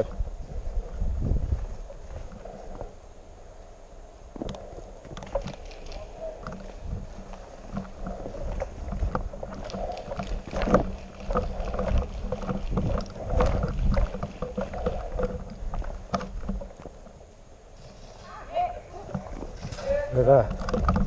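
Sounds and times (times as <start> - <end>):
wind buffeting microphone: 0.0 - 17.6, 18.9 - 21.0
sharp knocks and rustle of gear: 4.3 - 21.0.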